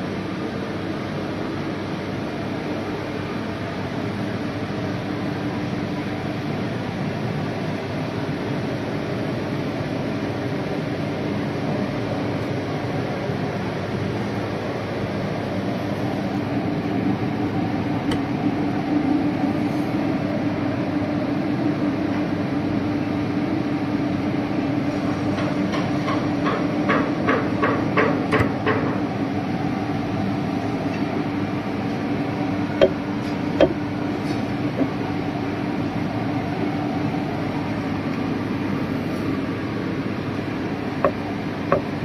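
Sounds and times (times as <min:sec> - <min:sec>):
sharp knocks: 0:41.0 - 0:41.9.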